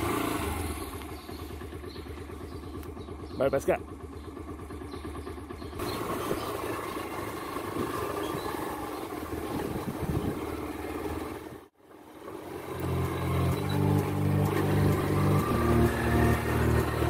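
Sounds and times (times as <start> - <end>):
road and wind noise: 0.0 - 17.0
vehicle engine running: 0.0 - 17.0.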